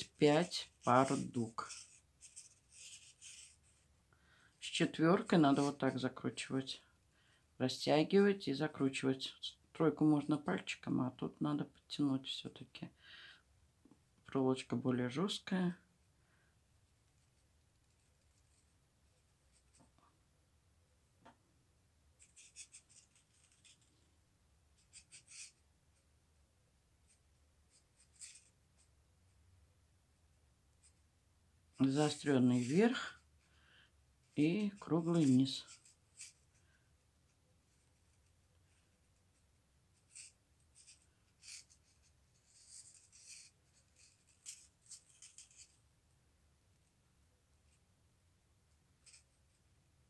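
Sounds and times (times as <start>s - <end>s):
beading wire rustling and ticking: 0.0s - 3.9s, 22.2s - 24.2s, 31.7s - 33.5s, 34.2s - 45.8s.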